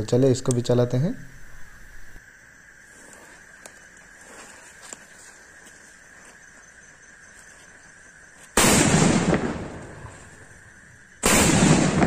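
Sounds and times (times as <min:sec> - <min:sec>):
firecracker bangs: 0:08.6 - 0:10.2, 0:11.2 - 0:12.0.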